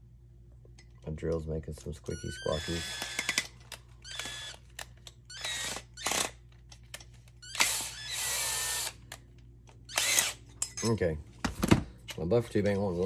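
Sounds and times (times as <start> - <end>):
cordless drill whining: 2.4 - 4.6, 5.3 - 6.3, 7.4 - 9.0, 9.9 - 10.4.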